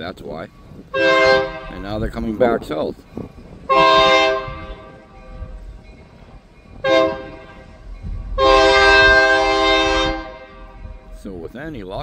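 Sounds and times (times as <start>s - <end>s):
low rumble of train: 0.0s - 12.0s
locomotive air horn blasts: 0.9s - 1.8s, 3.7s - 5.5s, 6.8s - 10.9s.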